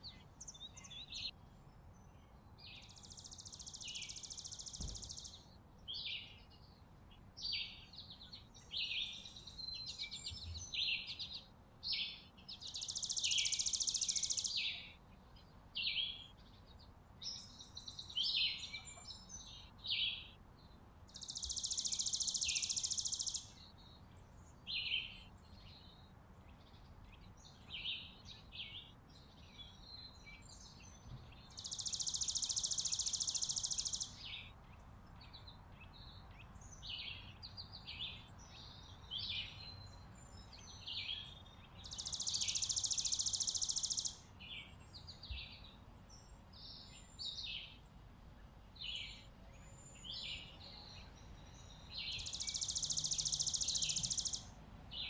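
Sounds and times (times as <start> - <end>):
bird chirps and twitters: 2.6 - 6.2, 7.5 - 14.9, 21.2 - 23.7, 27.7 - 34.6, 35.2 - 47.8, 48.8 - 55.0
high bird trill: 52.0 - 54.5.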